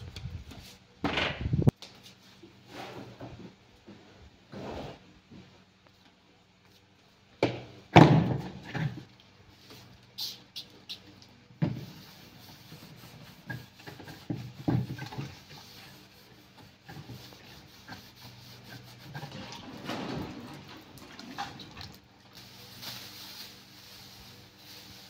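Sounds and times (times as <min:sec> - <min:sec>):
sponge scrubbing plastic table: 0:11.6 - 0:21.6.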